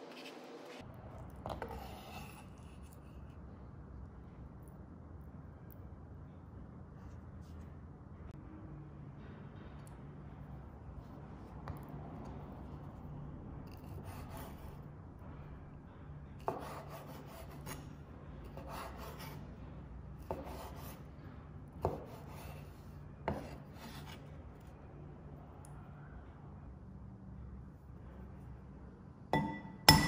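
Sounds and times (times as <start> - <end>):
knife scraping on cutting board: 1.5 - 3.1.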